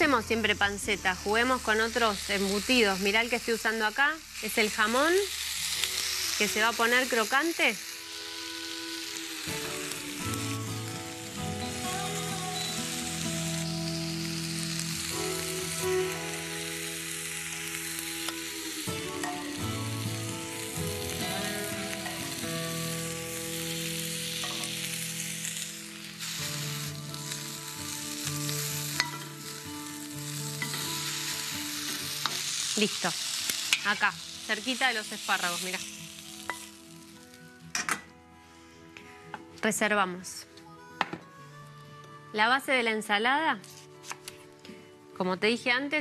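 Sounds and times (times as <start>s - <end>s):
prosciutto sizzling in a pan: 0.0s - 37.7s
soft background music: 0.0s - 46.0s
metal tongs in a pan: 24.4s - 24.9s, 28.9s - 29.4s, 30.6s - 35.8s, 36.4s - 36.8s.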